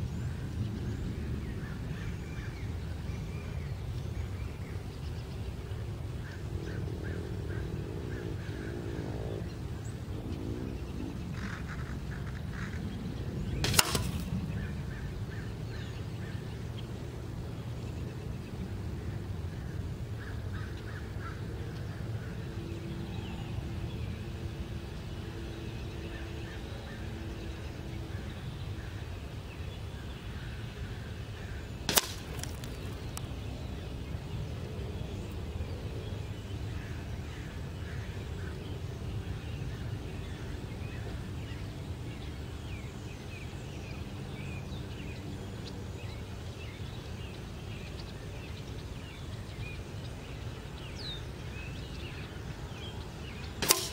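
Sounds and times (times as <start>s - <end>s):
birds chirping: 0.0s - 53.9s
low outdoor rumble: 0.0s - 53.9s
air rifle shot: 13.6s - 14.7s, 31.9s - 32.9s, 53.6s - 53.9s.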